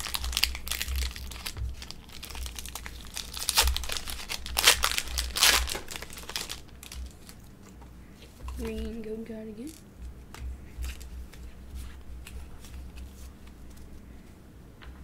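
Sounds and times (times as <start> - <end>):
foil wrapper crinkling: 0.0 - 7.8.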